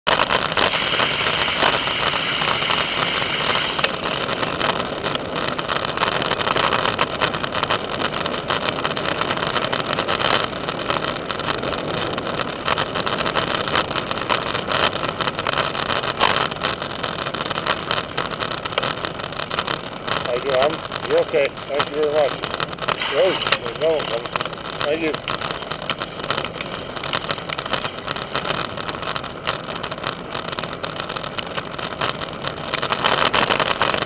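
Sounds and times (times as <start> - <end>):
bicycle tyres crunching on gravel: 0.1 - 34.0
bicycle rattles and knocks: 3.9 - 20.8.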